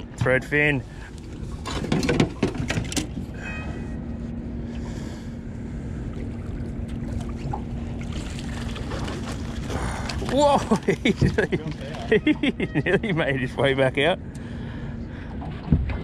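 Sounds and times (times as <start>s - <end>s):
faint steady hum: 0.0s - 16.0s
water noise: 0.0s - 16.0s
wind: 0.0s - 16.0s.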